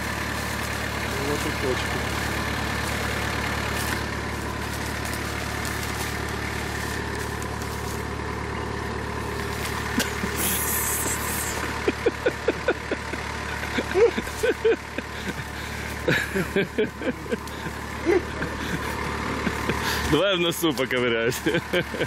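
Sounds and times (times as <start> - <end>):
leafy branches rustling: 0.0 - 11.8
vehicle engine idling: 0.0 - 22.0.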